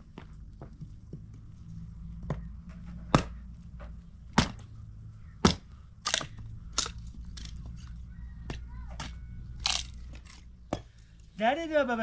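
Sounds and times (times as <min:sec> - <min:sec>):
sharp cracking knocks: 0:02.8 - 0:04.8, 0:05.4 - 0:07.6.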